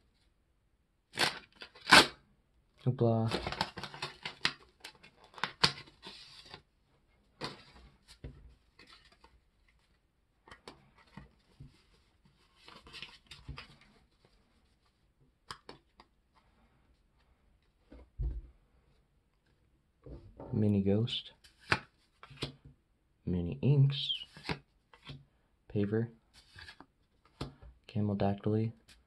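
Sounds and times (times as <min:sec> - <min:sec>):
paper wrapper tearing and crinkling: 0:03.3 - 0:06.6.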